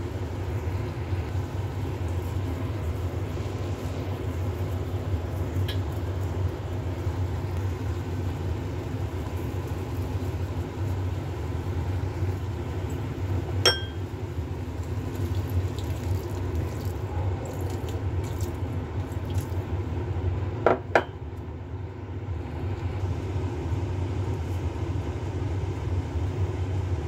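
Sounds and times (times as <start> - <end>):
mussels simmering in pot: 0.0 - 20.5
glass lid clinks: 13.7 - 14.0.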